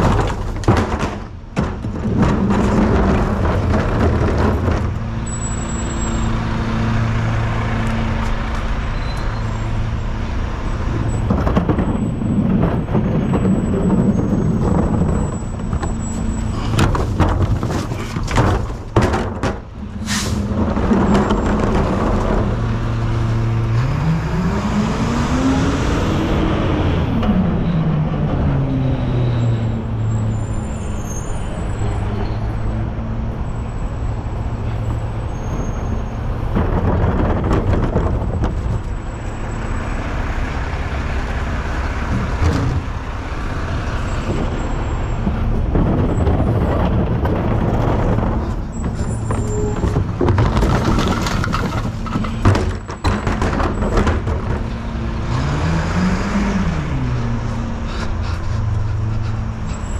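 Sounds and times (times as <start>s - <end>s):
sharp knocks and clatter: 0.0s - 5.2s, 10.9s - 23.9s, 35.4s - 39.4s, 42.1s - 55.6s
truck engine humming and revving: 0.0s - 59.9s.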